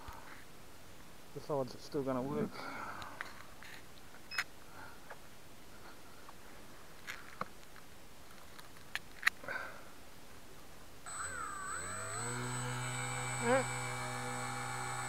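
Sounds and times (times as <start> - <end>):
low steady hiss: 0.0 - 11.8.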